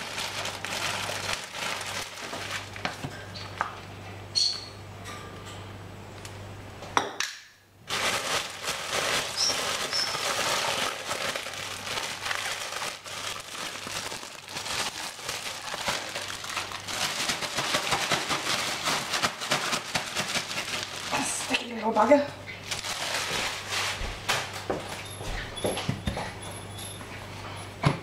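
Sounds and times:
plastic packaging crinkling: 0.0 - 3.6, 7.8 - 21.8, 22.6 - 24.6.

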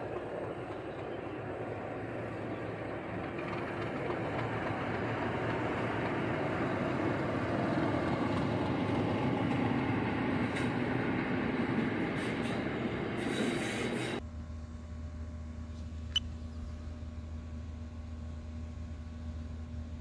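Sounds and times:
diesel locomotive engine: 0.0 - 20.0.

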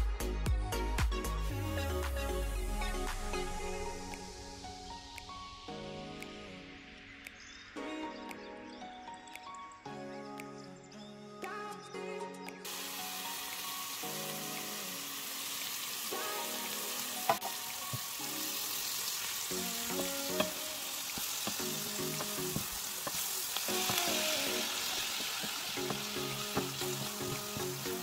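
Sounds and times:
light background music: 0.0 - 28.0
vegetables sizzling in a frying pan: 12.7 - 28.0.

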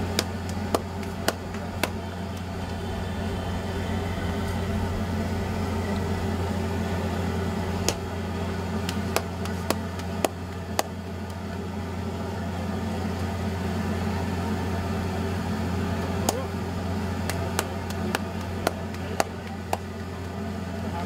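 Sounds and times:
low mechanical hum: 0.0 - 21.0
dough slapped between palms: 0.1 - 2.5, 7.8 - 8.1, 8.8 - 11.4, 17.2 - 19.9.

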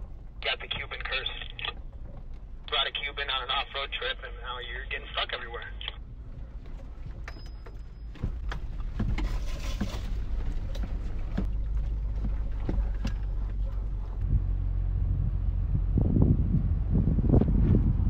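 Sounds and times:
engine and tyres rumbling: 0.0 - 18.0
knocks and rattles over bumps: 6.0 - 14.3.

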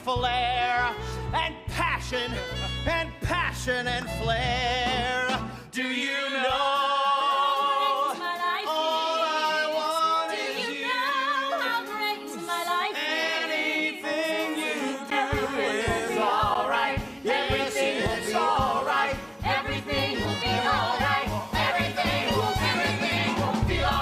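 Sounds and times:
voices singing in harmony: 4.9 - 24.0.

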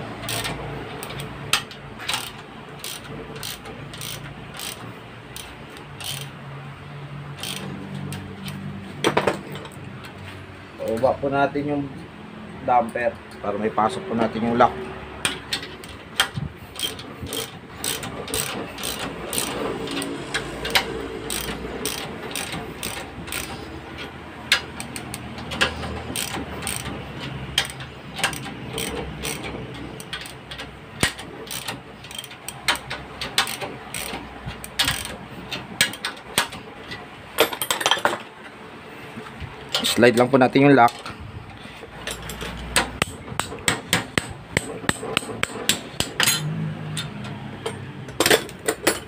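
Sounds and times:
socket ratchet clicking: 0.2 - 6.4, 7.3 - 8.6, 15.2 - 36.6
metal tools clinking: 15.2 - 38.6, 41.8 - 43.0, 45.2 - 49.0.

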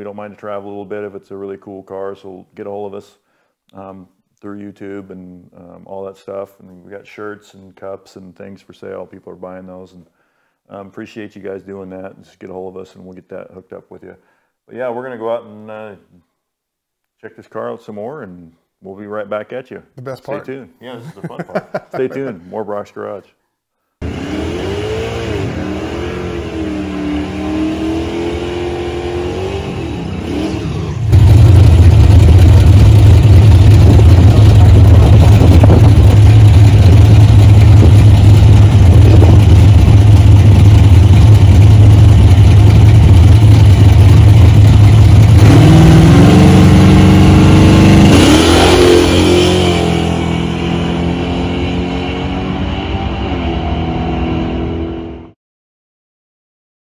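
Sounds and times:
loud steady engine drone: 24.0 - 54.9
drag racing engines revving: 24.0 - 55.0.

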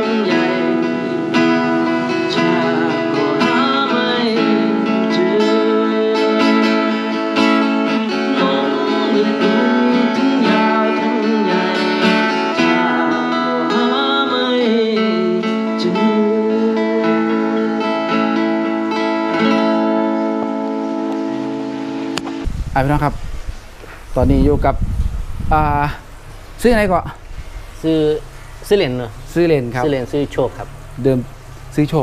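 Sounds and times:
person singing: 0.0 - 20.7
acoustic guitar: 0.0 - 24.1.

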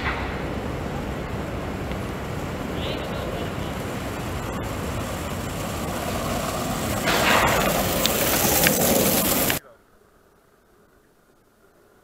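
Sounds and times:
wind on microphone: 0.0 - 9.6
skateboard wheels rolling on asphalt: 0.0 - 12.0.

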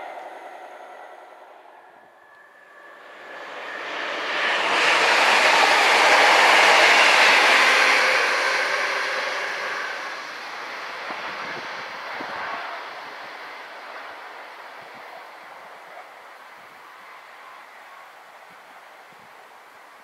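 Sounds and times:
train wheel and rail noise: 0.0 - 20.0.

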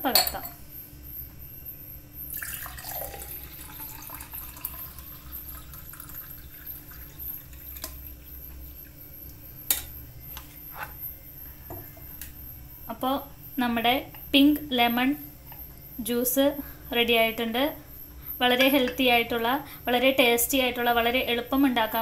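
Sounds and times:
juice pouring into a glass: 2.3 - 9.0.

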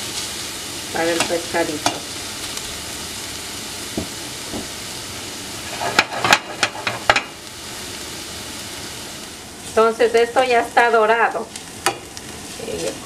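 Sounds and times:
onion and garlic sizzling in oil: 0.0 - 13.0
pan clanking on burner grate: 5.6 - 7.4.

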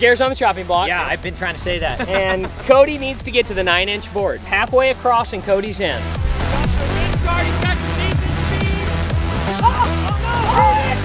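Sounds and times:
electronic dance music: 4.8 - 11.0.

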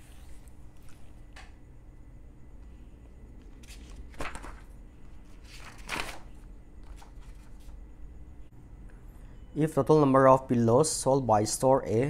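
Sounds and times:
paper rustling: 3.4 - 7.8.

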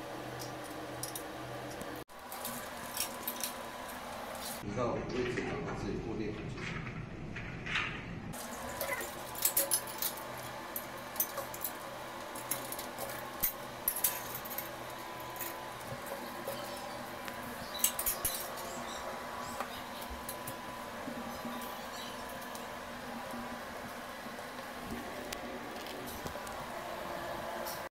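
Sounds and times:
metal hooks and chains clinking: 0.4 - 4.6, 8.4 - 19.0
faint steady hum: 8.2 - 27.9.

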